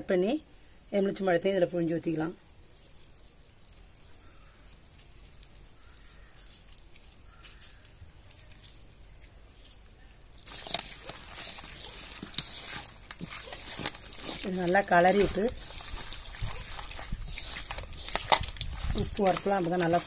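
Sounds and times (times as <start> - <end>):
hand squelching wet meat: 10.4 - 20.0.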